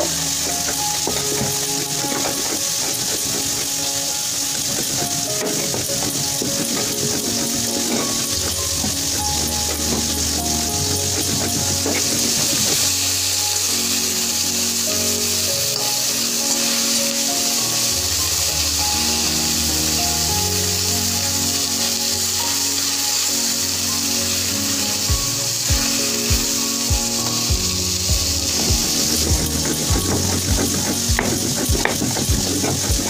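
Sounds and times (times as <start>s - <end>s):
background music with held notes: 0.0s - 33.0s
fish frying in oil: 0.0s - 33.0s
regular drum beat: 25.1s - 33.0s.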